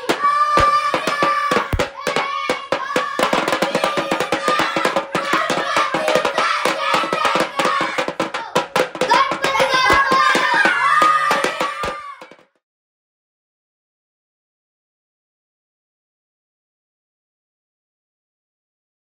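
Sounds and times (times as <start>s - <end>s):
fast hand-drum beat: 0.0s - 12.5s.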